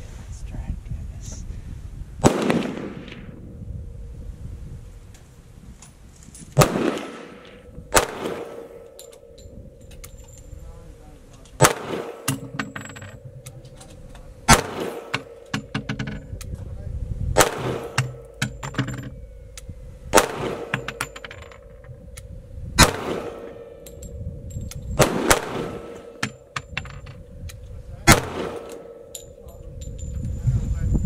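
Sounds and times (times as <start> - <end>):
pistol shots with echo: 2.2 - 3.4, 6.6 - 9.4, 11.6 - 13.6, 14.4 - 15.9, 17.4 - 19.0, 20.1 - 21.7, 22.8 - 24.0, 25.0 - 26.7, 28.0 - 29.4.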